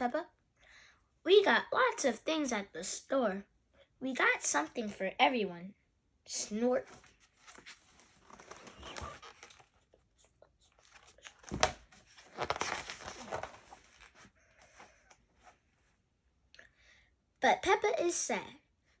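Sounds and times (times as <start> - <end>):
book pages turning: 6.8 - 15.6.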